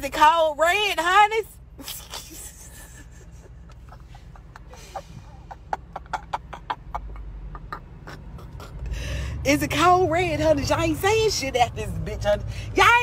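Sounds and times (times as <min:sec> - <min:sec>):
wind and road noise: 0:00.0 - 0:13.0
woman's stifled laughter: 0:02.2 - 0:08.8.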